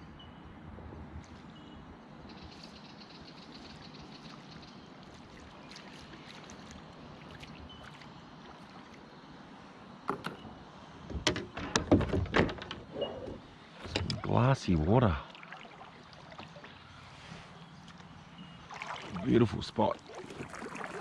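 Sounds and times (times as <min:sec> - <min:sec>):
river-bank ambience: 0:00.0 - 0:21.0
kayak paddle splashing: 0:03.6 - 0:09.2, 0:13.5 - 0:21.0.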